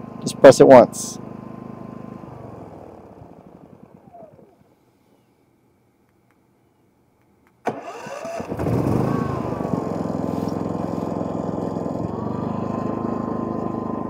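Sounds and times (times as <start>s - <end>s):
generator engine starting: 0.0s - 4.8s, 7.6s - 14.0s.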